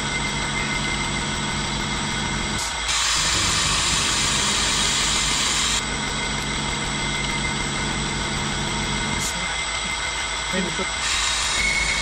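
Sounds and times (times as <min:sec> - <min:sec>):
milling machine humming: 0:00.0 - 0:12.0
loud hiss: 0:02.9 - 0:05.8, 0:11.0 - 0:12.0.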